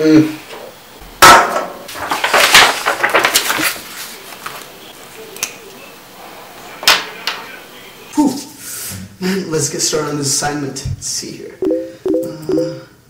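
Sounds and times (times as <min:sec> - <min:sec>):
paper rustling and pen clattering: 0:01.9 - 0:04.7.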